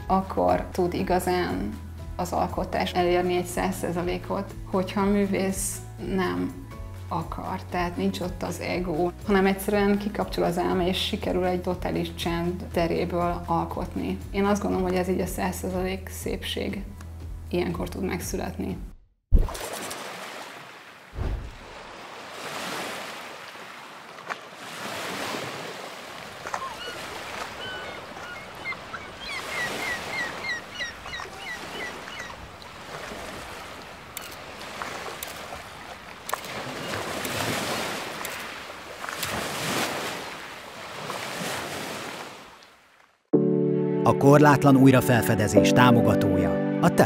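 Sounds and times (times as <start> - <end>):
waves washing in: 19.5 - 42.9
low thump: 21.2 - 21.6
bird chirping: 26.5 - 32.5.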